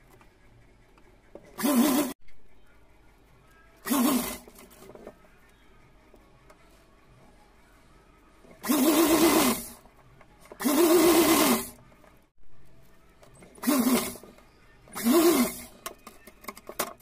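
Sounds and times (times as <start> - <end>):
sewing machine whining: 0.2 - 5.0, 8.6 - 9.8, 10.4 - 11.8, 13.4 - 16.9.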